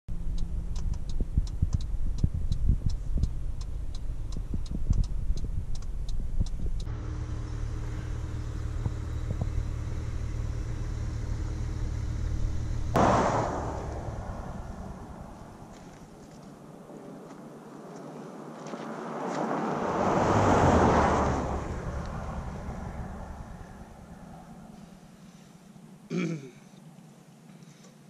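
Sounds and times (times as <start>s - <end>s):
regular ticking: 0.1s - 16.1s
steady low hum: 0.1s - 17.2s, 20.6s - 26.2s
car rumble: 0.1s - 25.2s
sudden loud rush of noise: 12.9s - 16.2s, 19.4s - 25.1s.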